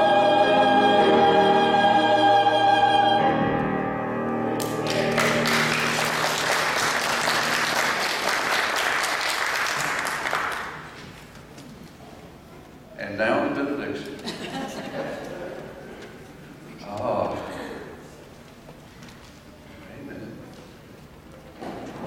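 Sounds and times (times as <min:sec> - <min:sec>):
choir and piano: 0:00.0 - 0:08.7
congregation applauding: 0:04.6 - 0:11.1.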